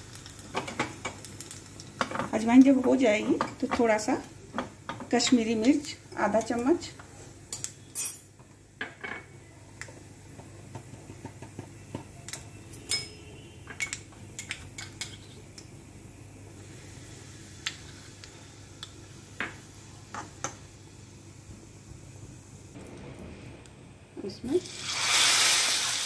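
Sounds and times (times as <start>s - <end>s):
seeds crackling in hot oil: 0.0s - 8.1s, 13.8s - 26.0s.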